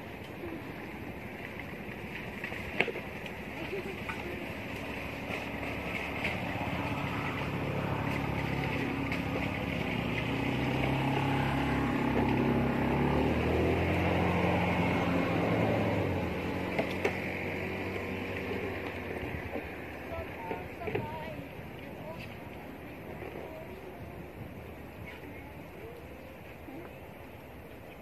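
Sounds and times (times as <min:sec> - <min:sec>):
vehicle engine passing by: 0:00.0 - 0:22.2.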